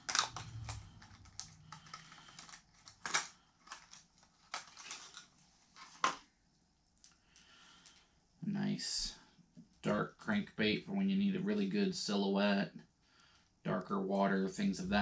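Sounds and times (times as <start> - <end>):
plastic package snapping: 0.0 - 5.3
plastic package crinkling: 0.0 - 6.2.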